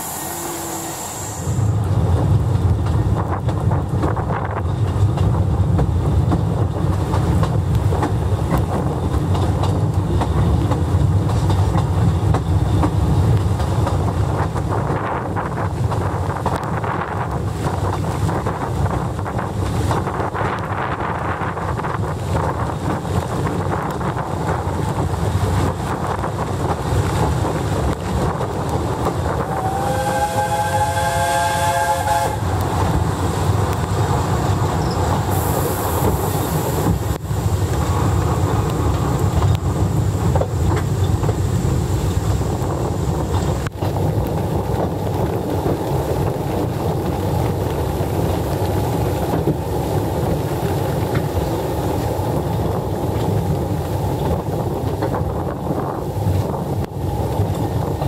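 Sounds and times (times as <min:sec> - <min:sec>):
steam whistle: 0:00.0 - 0:01.7, 0:29.4 - 0:32.6
train coaches rumbling: 0:00.0 - 0:58.0
wind buffeting microphone: 0:00.0 - 0:58.0.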